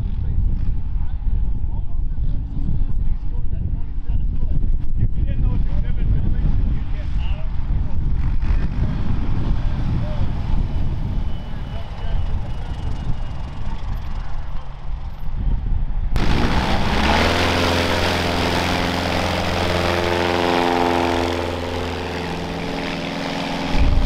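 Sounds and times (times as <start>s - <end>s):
distant engine noise: 16.2s - 24.0s
propeller plane engine drone: 16.2s - 24.0s.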